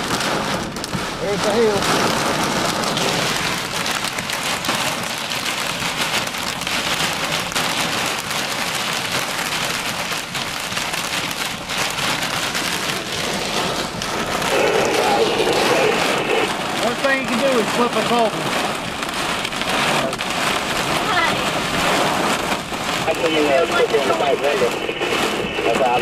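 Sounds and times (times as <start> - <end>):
hail and rain on truck roof: 0.0 - 26.0
strong wind: 12.1 - 26.0.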